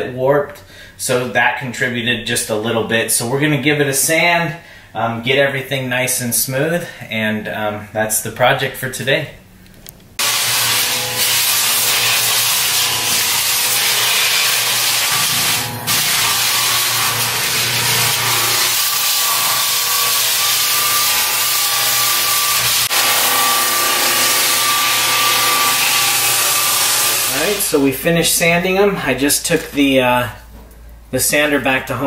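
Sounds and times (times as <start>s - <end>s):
floor sander grinding: 10.2s - 27.9s.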